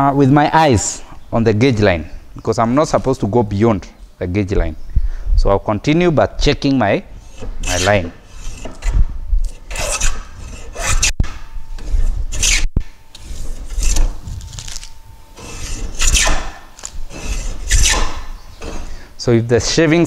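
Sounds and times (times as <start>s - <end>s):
hand plane scraping wood: 7.2s - 8.9s, 9.5s - 11.1s, 11.8s - 12.6s, 13.2s - 14.2s, 15.4s - 16.4s, 17.1s - 19.0s.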